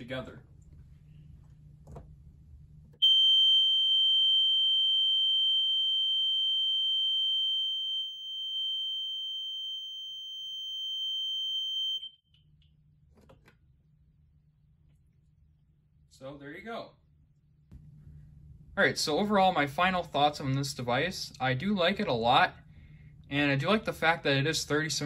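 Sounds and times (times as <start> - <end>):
high-pitched fire alarm horn: 3.0 - 12.2.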